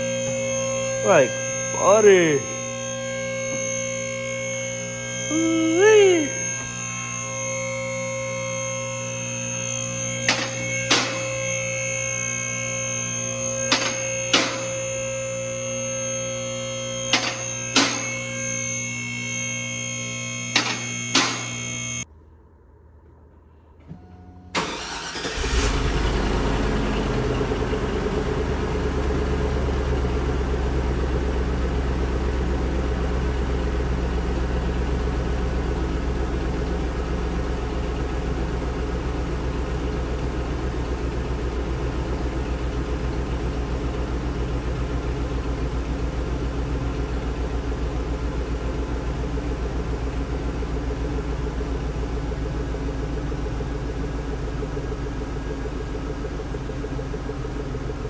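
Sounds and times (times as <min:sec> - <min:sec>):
vehicle engine starting and idling: 0:22.1 - 0:58.0.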